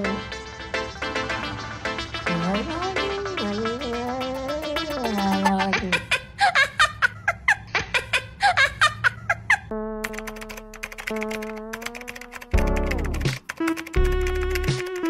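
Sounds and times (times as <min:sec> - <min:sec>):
high chirpy vocal-like sounds: 0:02.3 - 0:05.9
keyboard typing clicks: 0:10.0 - 0:15.0.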